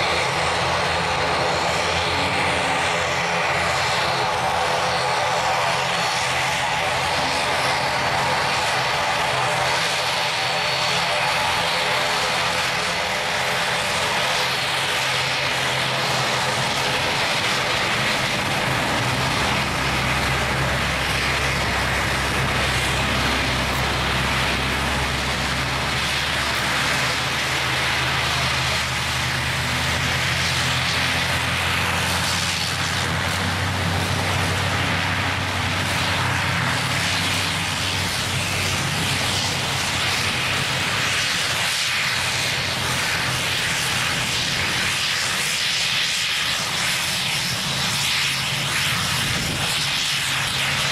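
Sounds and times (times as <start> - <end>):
propeller drone: 0.0 - 50.9
deep engine hum: 14.8 - 39.2.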